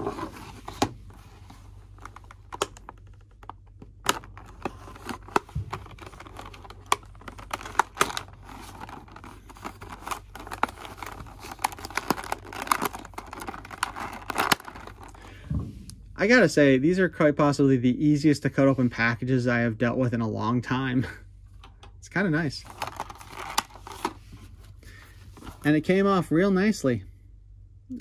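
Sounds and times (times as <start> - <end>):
plastic packaging being cut open: 4.0 - 15.1.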